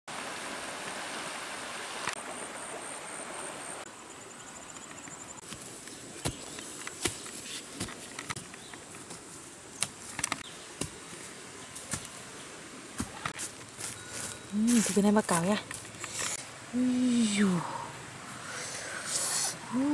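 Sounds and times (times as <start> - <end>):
water rushing over rapids: 0.1 - 3.8
insects buzzing: 2.1 - 19.9.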